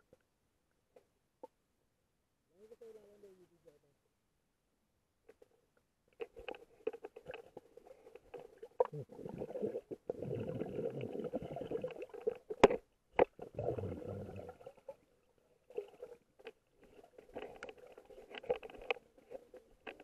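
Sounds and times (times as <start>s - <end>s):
muffled underwater river noise: 6.1s - 20.0s.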